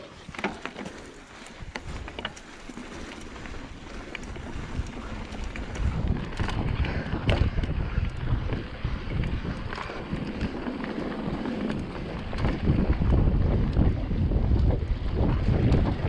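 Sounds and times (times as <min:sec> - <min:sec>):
bike knocks and rattles: 0:00.1 - 0:16.0
wind buffeting microphone: 0:01.3 - 0:16.0.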